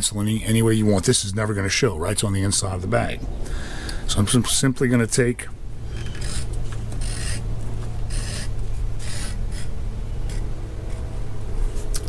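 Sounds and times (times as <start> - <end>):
blade scraping leather: 5.8 - 12.0.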